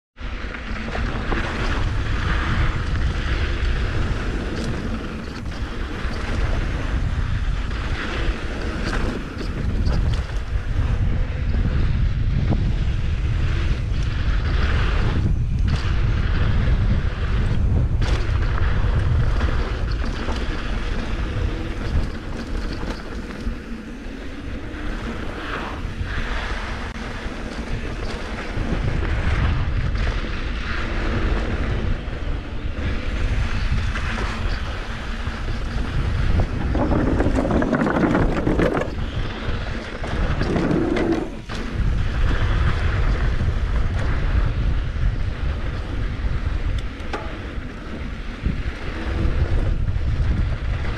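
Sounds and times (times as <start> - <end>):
bike tyres rolling on dirt trail: 0.2 - 50.9
wind rushing over microphone: 0.2 - 50.9
bike knocking over rough ground: 35.7 - 42.4.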